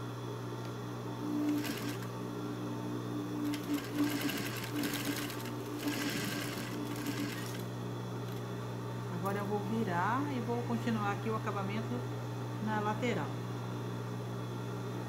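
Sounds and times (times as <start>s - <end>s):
steady low hum: 0.0s - 15.0s
sewing machine stitching: 1.4s - 2.1s, 3.4s - 7.6s.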